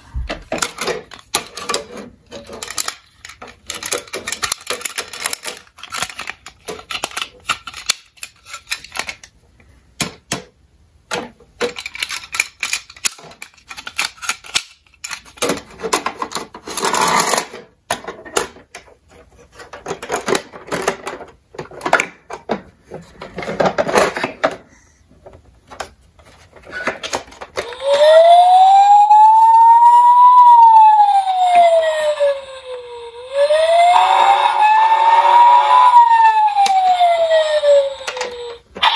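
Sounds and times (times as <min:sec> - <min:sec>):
plastic toy clicks and rattles: 0:00.5 - 0:09.4, 0:11.1 - 0:18.9, 0:19.5 - 0:22.6, 0:36.2 - 0:38.9
toy siren wailing: 0:27.6 - 0:38.9.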